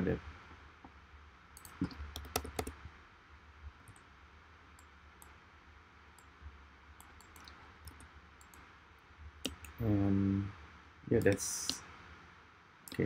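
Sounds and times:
low steady hum: 0.0s - 13.0s
mouse and keyboard clicking: 1.6s - 2.8s, 7.0s - 8.6s, 9.4s - 9.8s, 11.2s - 11.8s.

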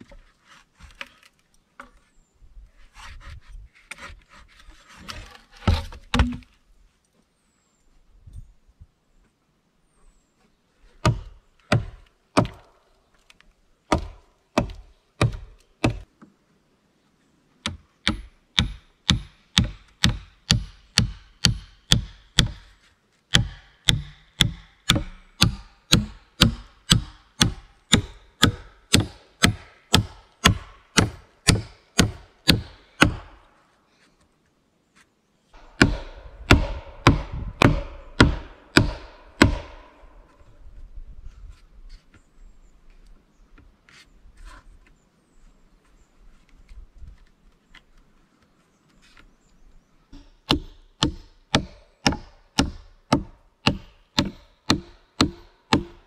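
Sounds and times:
hand tool striking wood: 13.9s - 16.1s, 17.6s - 22.7s, 23.3s - 33.3s, 35.6s - 40.2s, 50.2s - 56.0s.

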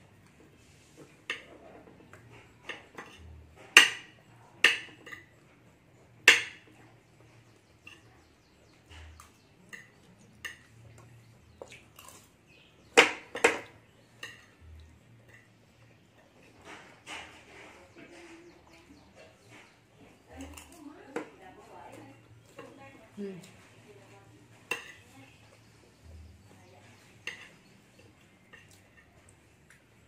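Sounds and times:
metal spoon clinking on plate: 13.3s - 14.6s, 27.0s - 29.1s.

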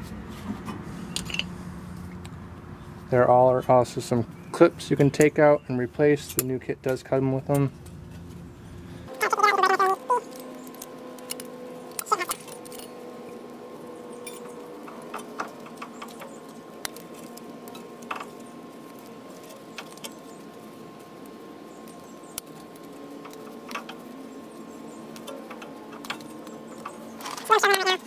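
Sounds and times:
metal clips clicking and scraping: 6.1s - 8.4s, 9.7s - 21.1s, 21.8s - 28.0s.

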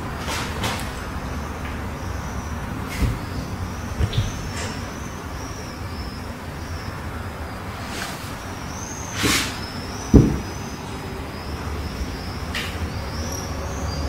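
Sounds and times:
dull thump against wood: 10.1s - 10.6s.

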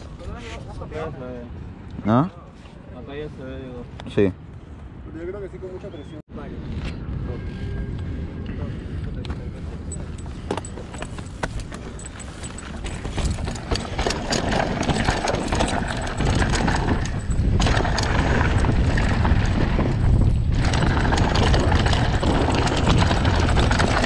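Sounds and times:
wind rumbling on microphone: 6.3s - 24.0s
bike tyres crunching over gravel: 9.3s - 24.0s
stones and bike rattling: 9.3s - 24.0s.

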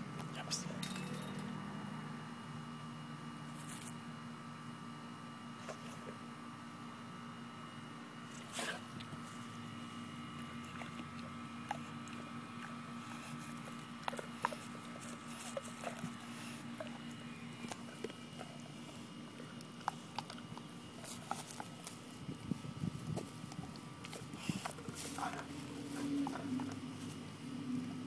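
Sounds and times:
low steady hum: 0.0s - 28.0s
dog gnawing and chewing: 5.6s - 6.4s, 8.2s - 28.0s.

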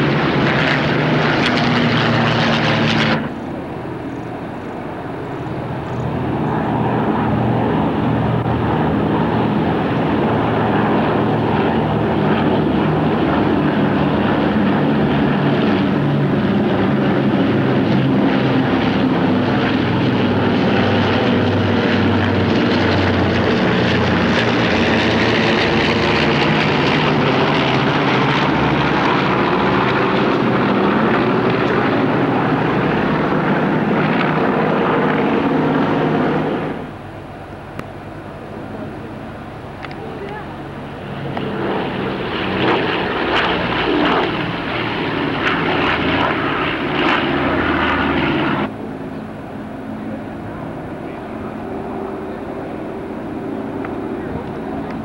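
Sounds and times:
radial piston engines droning: 0.0s - 55.0s.

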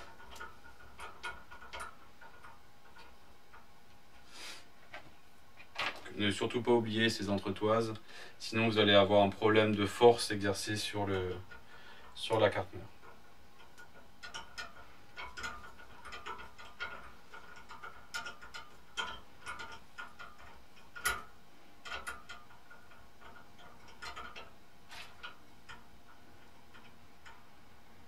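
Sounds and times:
small screws clicking: 11.3s - 27.5s.

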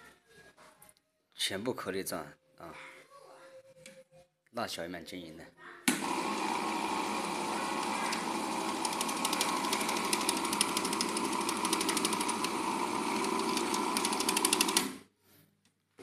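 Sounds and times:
food chopping machine blade spinning: 5.9s - 15.0s.

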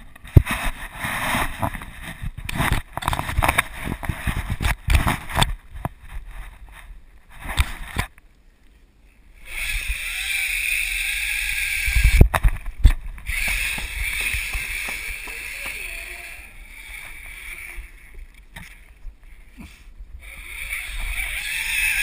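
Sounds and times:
pulleys whirring along cable: 9.4s - 12.4s, 13.2s - 18.1s, 20.2s - 22.0s
zipline trolley knocking and rattling: 9.6s - 17.7s.

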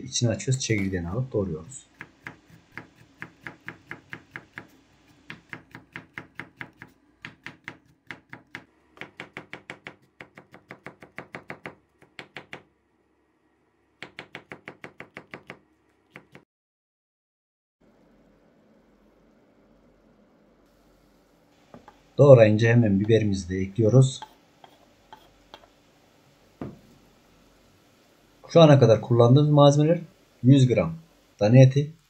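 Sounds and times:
knife tapping on wooden board: 5.3s - 12.6s, 14.0s - 15.6s.

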